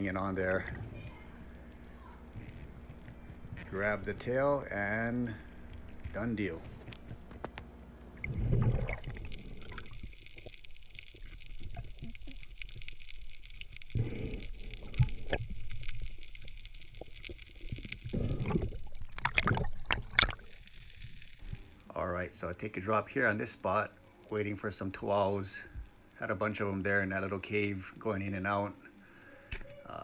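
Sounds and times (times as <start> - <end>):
muffled underwater gurgling: 8.1 - 21.7.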